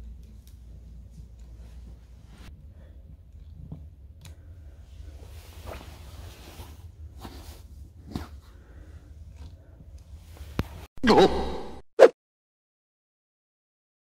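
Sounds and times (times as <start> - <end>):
low room hum: 0.0 - 11.8
bed linen rustling: 4.8 - 8.9.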